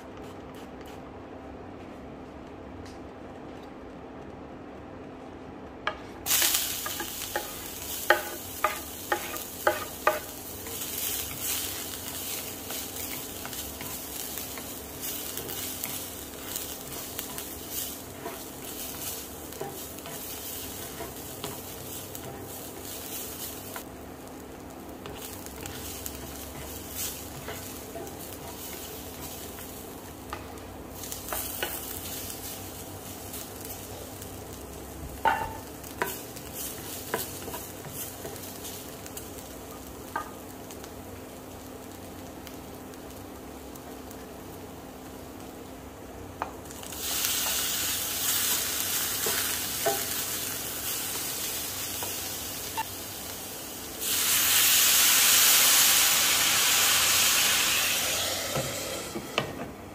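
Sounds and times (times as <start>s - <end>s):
meat frying in oil: 6.3s - 59.4s
water hissing in hot pan: 46.9s - 59.5s.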